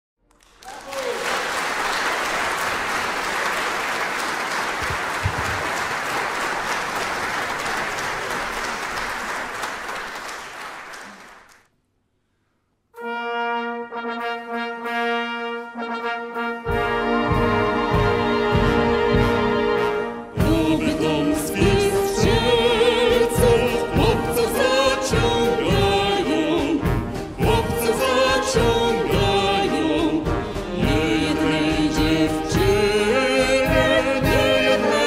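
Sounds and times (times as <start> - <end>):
audience applause: 0.3 - 11.7
brass band playing: 13.0 - 35.0.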